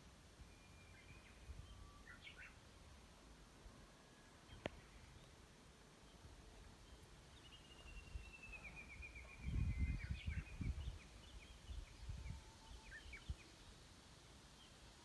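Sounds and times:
small birds singing: 0:00.4 - 0:02.8, 0:04.2 - 0:15.0
wind buffeting microphone: 0:09.2 - 0:12.5.

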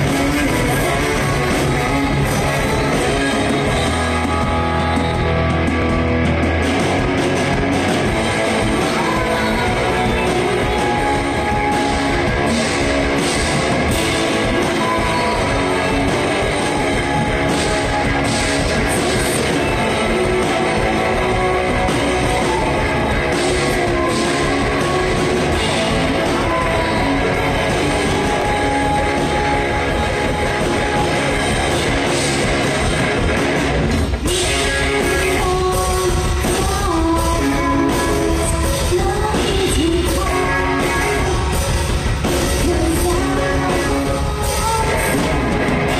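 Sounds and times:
drum kit: 0:00.0 - 0:45.9
electric guitars: 0:00.0 - 0:45.9.

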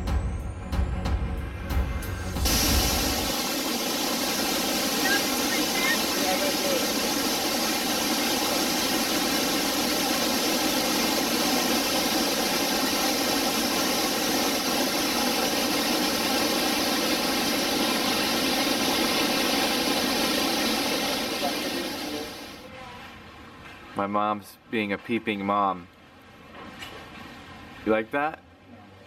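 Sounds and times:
waterfall roaring: 0:02.5 - 0:22.6.

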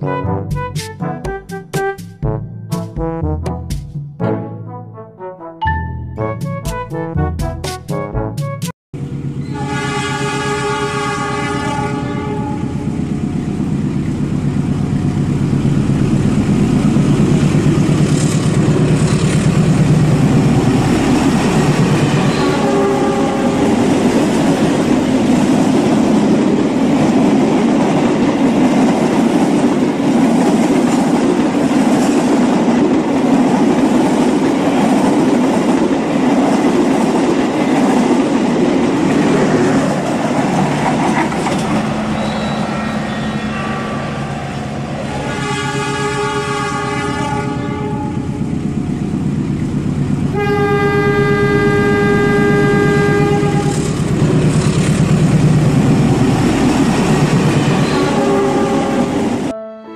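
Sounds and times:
toy train horn: 0:09.4 - 0:12.9, 0:22.2 - 0:23.9, 0:45.1 - 0:48.4, 0:50.3 - 0:53.9, 0:57.8 - 0:59.9.

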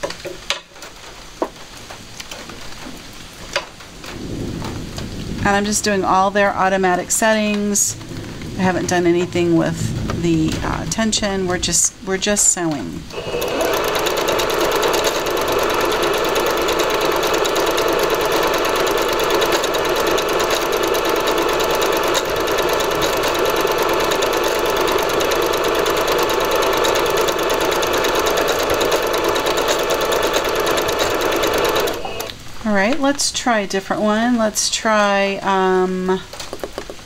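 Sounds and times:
sewing machine running: 0:13.1 - 0:32.3.

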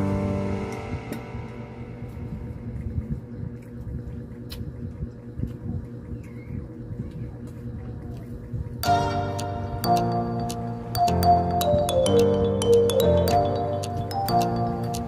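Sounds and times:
background music: 0:00.0 - 0:02.7, 0:08.8 - 0:15.0
low room rumble: 0:00.0 - 0:15.0.

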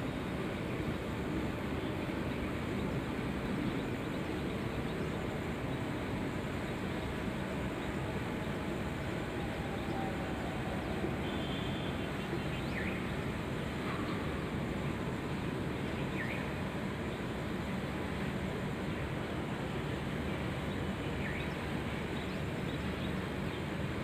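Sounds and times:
faint bird chirp: 0:09.3 - 0:14.5.

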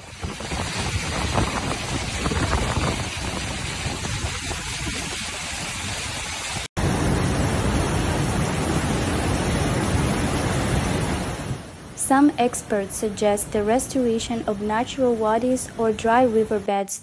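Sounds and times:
floodwater rushing: 0:00.0 - 0:13.6
wind: 0:00.0 - 0:17.0.

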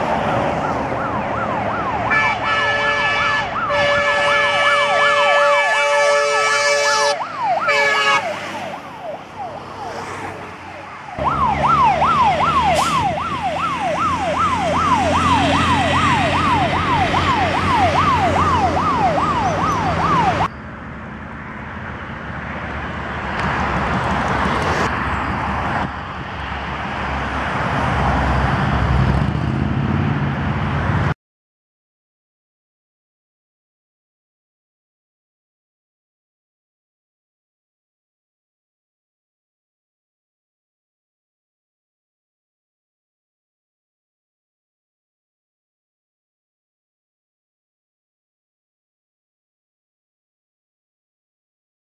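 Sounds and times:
fire engine sirens wailing: 0:00.0 - 0:20.5
passing road traffic: 0:00.0 - 0:31.2
truck engine rumble: 0:00.0 - 0:31.2.

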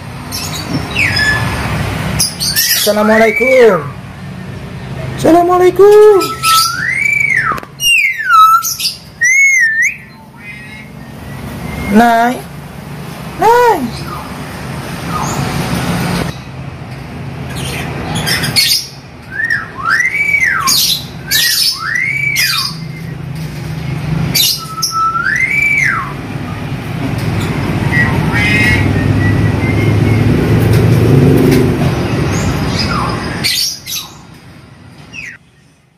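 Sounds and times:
myna squawking and whistling: 0:06.0 - 0:12.1, 0:18.2 - 0:23.2, 0:24.3 - 0:26.2, 0:27.4 - 0:30.4.

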